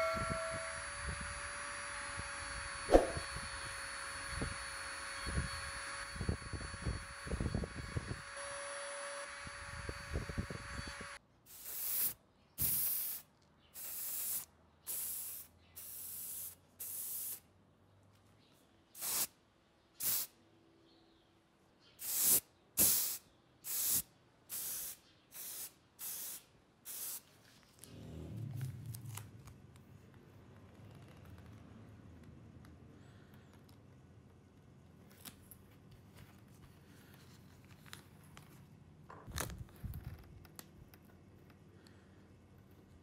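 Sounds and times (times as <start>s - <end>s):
aerosol spray paint hissing: 11.5s - 17.4s, 19.0s - 19.3s, 20.0s - 20.3s, 22.0s - 27.3s.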